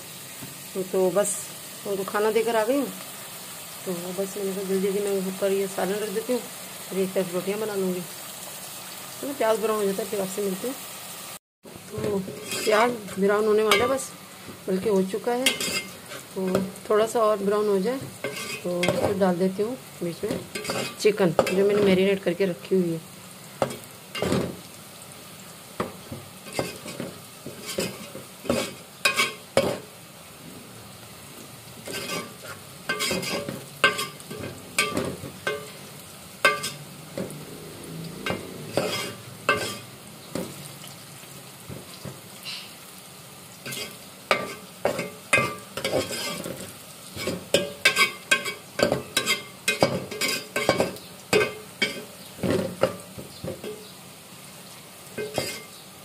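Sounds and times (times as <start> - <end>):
onions sizzling in oil: 0.0 - 56.0
metal spoon scraping a pot: 12.3 - 14.0, 15.4 - 16.3, 18.2 - 19.2, 20.5 - 21.8, 26.5 - 29.8, 31.8 - 35.8, 36.4 - 37.3, 38.2 - 39.9, 43.7 - 46.6, 47.2 - 52.1, 55.2 - 55.8.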